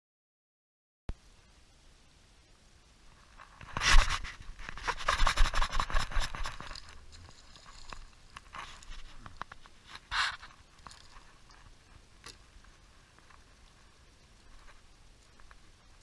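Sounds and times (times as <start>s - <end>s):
knocks and rustles: 3.2s - 12.5s.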